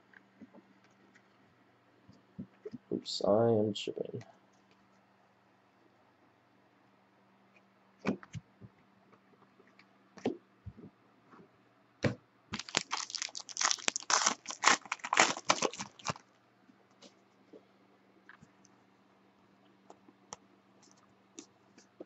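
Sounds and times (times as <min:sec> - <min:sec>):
foil wrapper tearing and crinkling: 0:12.6 - 0:16.2.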